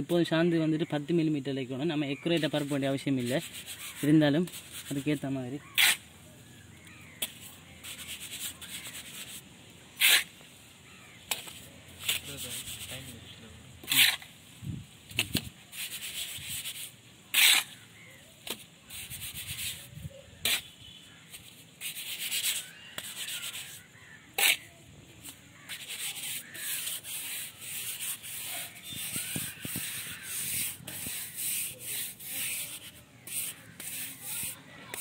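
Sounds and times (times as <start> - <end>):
trowel scraping mortar: 2.4 - 6.1, 7.0 - 9.4, 10.0 - 10.4, 11.3 - 13.2, 13.8 - 14.3, 15.2 - 20.7, 21.3 - 35.0.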